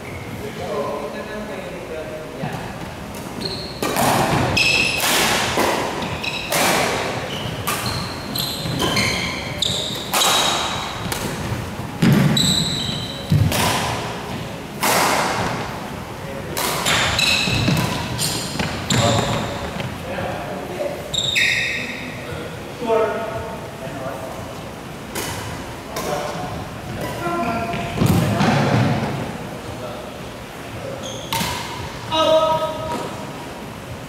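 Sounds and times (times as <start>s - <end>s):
shoes squeaking on court floor: 0.0s - 0.6s, 2.5s - 14.5s, 16.7s - 20.0s, 21.0s - 22.2s, 26.9s - 29.1s, 30.9s - 31.9s
racket hitting shuttlecock: 3.1s - 14.1s, 14.8s - 15.6s, 16.5s - 19.8s, 31.3s - 31.8s.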